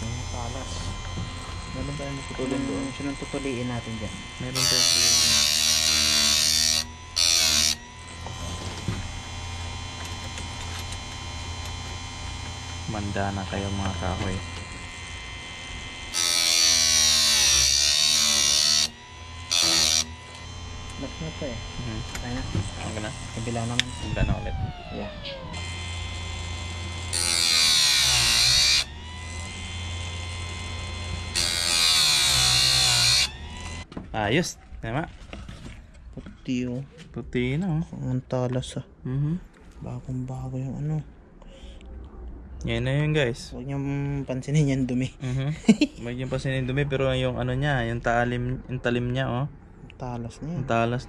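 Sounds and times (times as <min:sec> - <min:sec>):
grinding wheel grinding chain tooth: 0:00.0 - 0:33.9
motor humming: 0:00.0 - 0:33.9.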